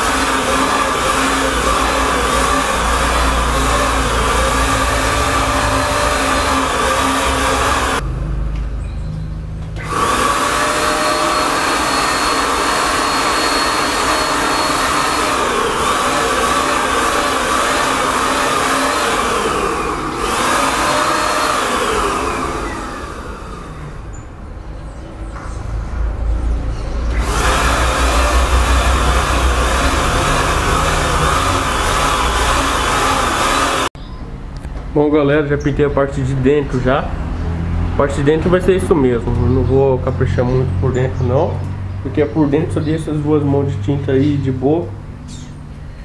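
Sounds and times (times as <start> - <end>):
electric paint spray gun running: 0.0 - 8.0, 9.7 - 24.2, 27.1 - 33.9.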